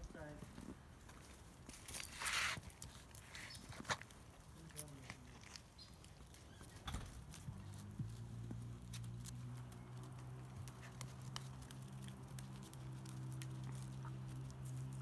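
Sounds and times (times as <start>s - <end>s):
puppy paws pattering: 0.0s - 15.0s
claws clicking on stone: 8.9s - 15.0s.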